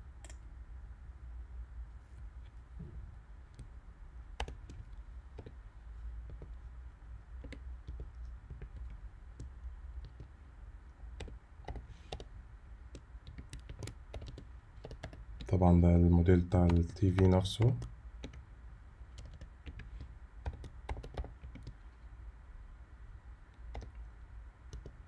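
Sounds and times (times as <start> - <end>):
faint low hum: 0.0 - 25.0
keyboard keys clicking: 4.4 - 4.8, 11.2 - 12.3, 12.9 - 15.5, 16.5 - 18.4, 19.2 - 21.8, 23.7 - 24.0, 24.7 - 25.0.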